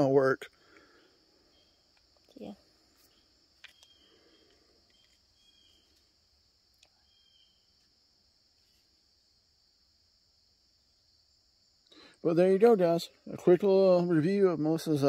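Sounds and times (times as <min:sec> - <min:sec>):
insects chirring: 0:00.0 - 0:15.0
faint clicks: 0:06.7 - 0:07.0.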